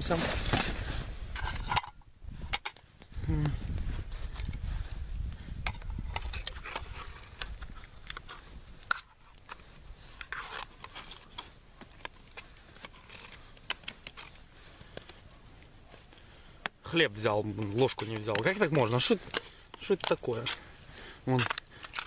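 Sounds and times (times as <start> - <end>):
knife scraping a tin can: 1.4 - 1.9, 10.2 - 11.5, 12.8 - 13.4.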